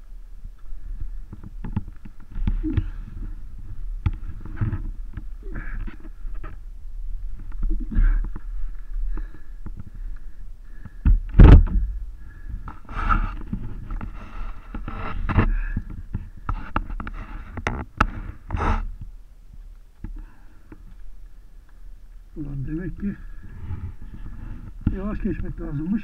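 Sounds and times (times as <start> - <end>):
steady low rumble: 0.0 - 26.0
knocks and scrapes of motorcycle: 1.1 - 6.6, 7.2 - 10.0, 10.7 - 19.1
heavy thump: 10.9 - 12.2.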